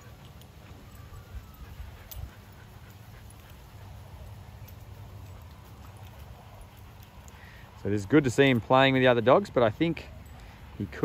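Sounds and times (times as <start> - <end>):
dogs scuffling on grass: 0.0 - 11.0
small dog whines: 0.7 - 2.2.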